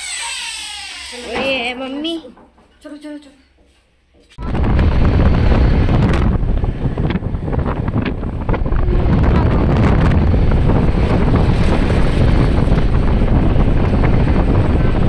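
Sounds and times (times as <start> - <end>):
wind buffeting microphone: 4.4 - 15.0.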